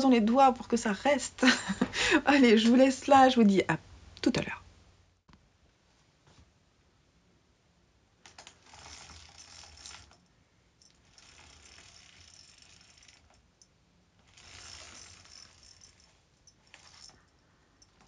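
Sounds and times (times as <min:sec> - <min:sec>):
roller blind rattling and clicking: 0:08.3 - 0:10.2, 0:10.9 - 0:13.5, 0:14.2 - 0:17.3.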